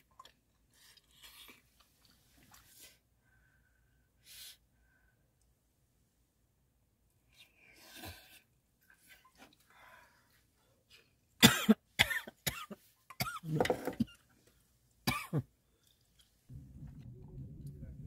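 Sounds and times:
woman coughing: 11.4 - 14.2, 15.1 - 15.5.

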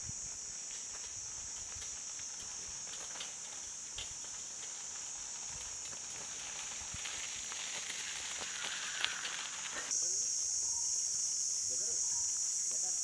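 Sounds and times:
cicadas droning: 0.0 - 13.0
footsteps on dirt road: 0.4 - 9.9.

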